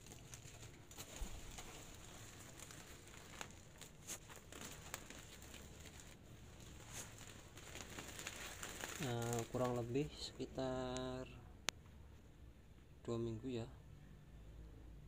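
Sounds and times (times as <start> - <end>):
plastic sack rustling: 0.0 - 10.4.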